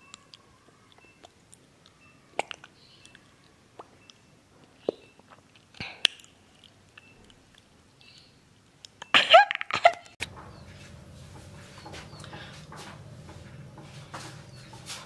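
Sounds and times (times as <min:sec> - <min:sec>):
lip and tongue clicks: 0:00.0 - 0:10.1
low room hum: 0:00.0 - 0:15.0.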